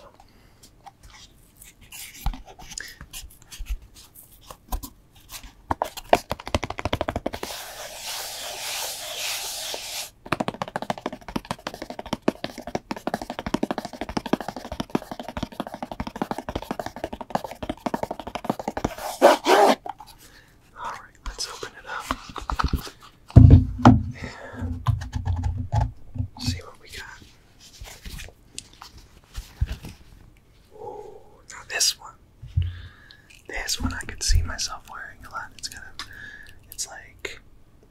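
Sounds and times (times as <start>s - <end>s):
rubbing hiss: 7.4s - 10.1s.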